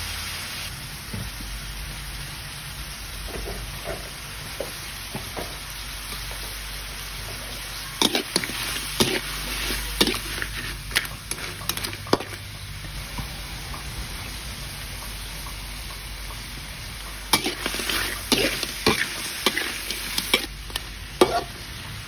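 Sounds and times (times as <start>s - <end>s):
crab sizzling in a wok: 0.0s - 22.0s
utensil clacking and scraping: 8.0s - 13.0s.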